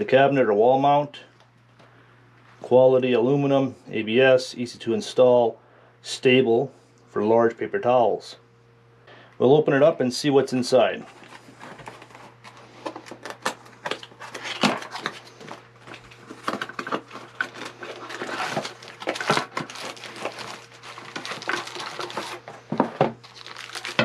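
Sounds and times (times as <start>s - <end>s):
cardboard rustling and scraping: 11.0s - 24.0s
plastic packaging crinkling: 11.1s - 24.0s.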